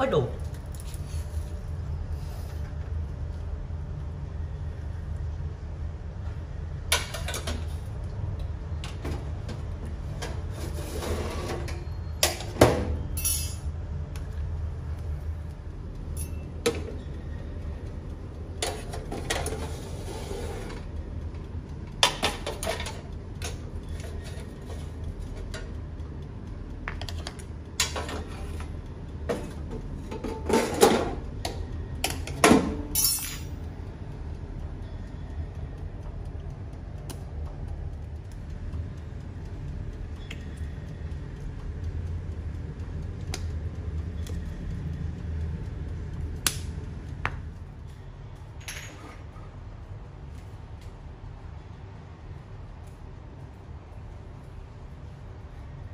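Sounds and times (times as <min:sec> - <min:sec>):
steady low hum: 0:00.0 - 0:55.9
metal tongs clinking and scraping: 0:13.2 - 0:13.7, 0:32.9 - 0:33.5.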